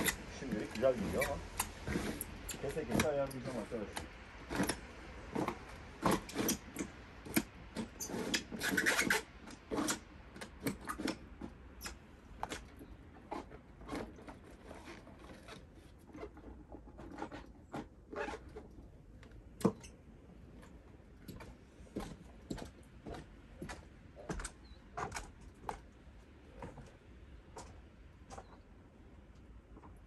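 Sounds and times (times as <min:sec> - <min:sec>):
rubbing and scraping: 0:00.0 - 0:22.1.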